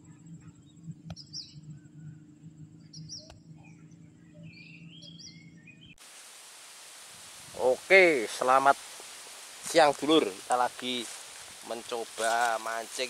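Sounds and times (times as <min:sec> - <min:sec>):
birds chirping: 0:00.0 - 0:06.0, 0:07.6 - 0:13.0
low steady drone: 0:00.0 - 0:06.0.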